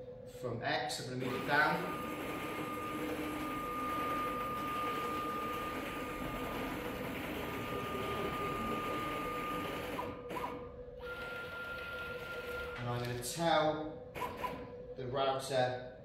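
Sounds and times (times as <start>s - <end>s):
stepper motors whining: 1.2s - 13.4s.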